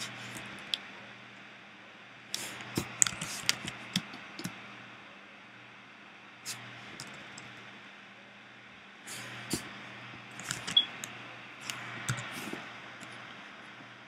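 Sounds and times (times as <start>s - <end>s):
faint steady hum: 0.0s - 14.0s
computer keys and mouse clicks: 3.0s - 4.6s, 10.4s - 12.4s.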